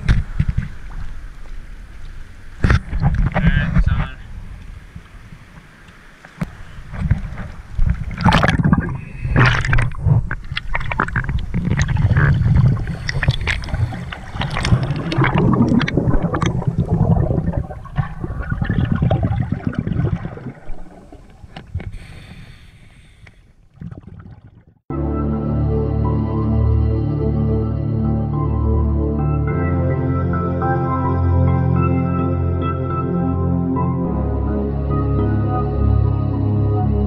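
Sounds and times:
water splashing: 0:00.0 - 0:24.8
underwater bubbles gurgling: 0:06.4 - 0:24.8
low rumble: 0:06.9 - 0:21.8.

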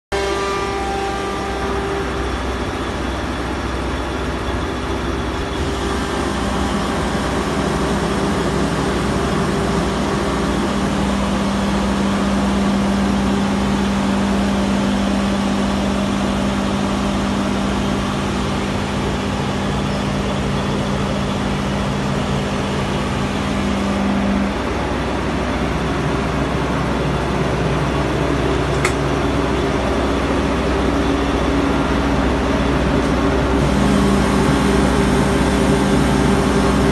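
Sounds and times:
air compressor running: 0:00.1 - 0:36.9
low steady hum: 0:00.1 - 0:36.9.

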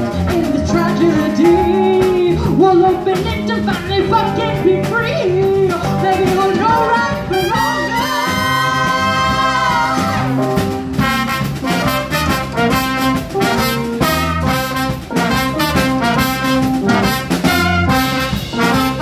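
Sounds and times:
band playing guitar bass drums: 0:00.0 - 0:19.0
horn section playing riff: 0:06.6 - 0:19.0.

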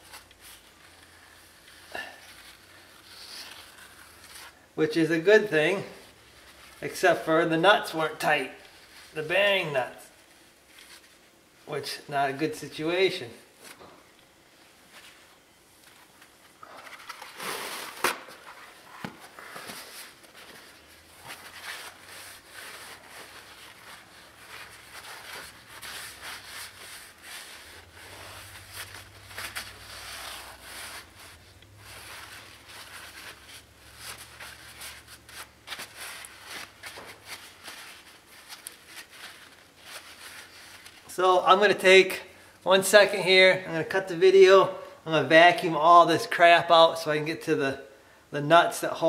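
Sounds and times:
paper towel crinkling and rubbing: 0:00.0 - 0:09.3, 0:09.9 - 0:12.1, 0:14.8 - 0:41.5.

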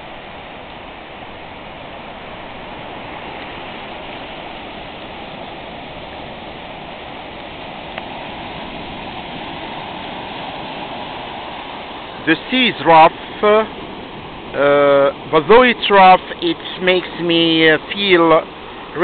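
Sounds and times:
surf breaking on beach: 0:00.0 - 0:19.0.

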